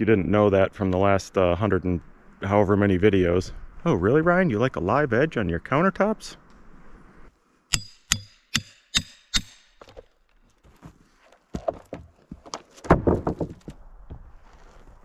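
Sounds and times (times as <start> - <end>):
knocks and thumps: 9.8 - 14.4
sharp knocks on wood: 12.8 - 14.2.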